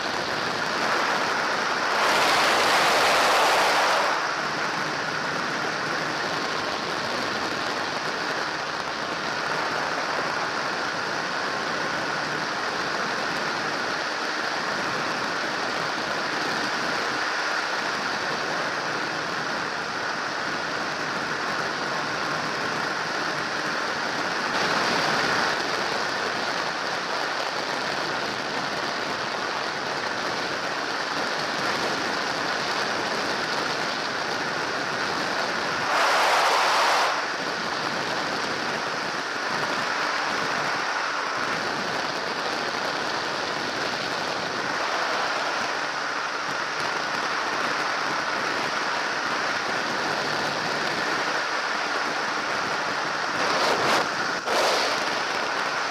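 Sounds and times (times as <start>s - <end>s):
engine drone: 0.0s - 55.9s
wind rushing: 0.3s - 5.3s, 35.7s - 37.6s, 53.3s - 55.9s.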